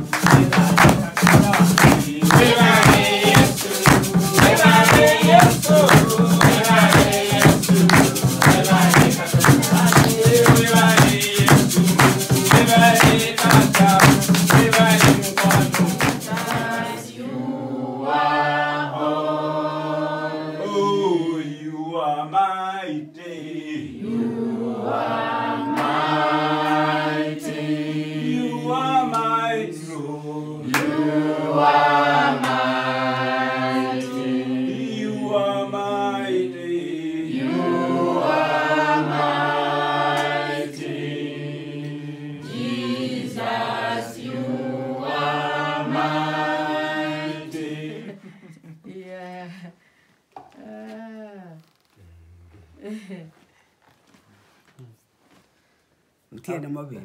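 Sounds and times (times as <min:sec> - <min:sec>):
hand percussion beat: 0:00.0 - 0:17.1
congregation singing: 0:00.0 - 0:48.9.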